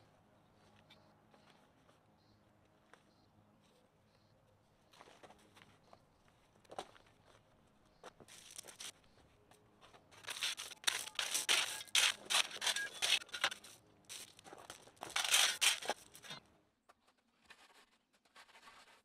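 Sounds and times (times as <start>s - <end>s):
stones rattling and crunching: 8.3s - 8.9s, 10.1s - 16.4s.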